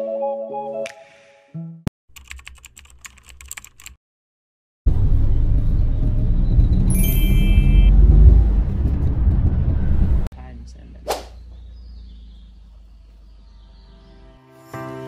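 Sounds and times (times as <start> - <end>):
keyboard typing clicks: 2.1 - 4.0
mallet percussion music: 6.9 - 7.9
brief high tone: 6.9 - 8.1.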